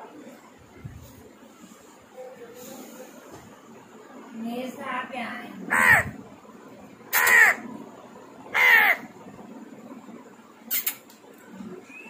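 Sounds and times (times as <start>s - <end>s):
parrot squawking harshly: 5.7s - 6.2s, 7.1s - 7.6s, 8.5s - 9.1s.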